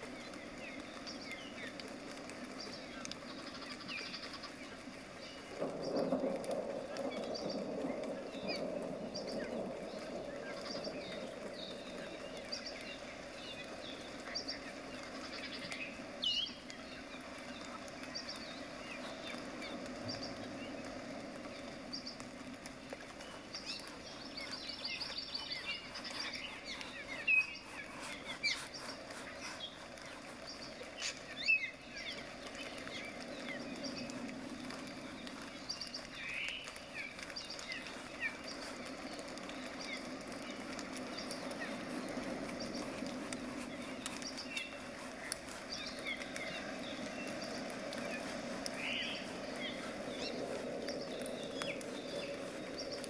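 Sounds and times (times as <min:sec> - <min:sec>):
small birds chirping: 0:00.0 - 0:53.0
brush stroking canvas: 0:22.9 - 0:31.6, 0:32.2 - 0:53.0
brush scrubbing paint: 0:22.9 - 0:53.0.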